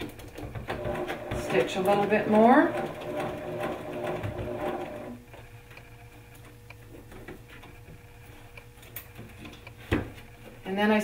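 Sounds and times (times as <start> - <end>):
sewing machine stitching: 0.7 - 5.2.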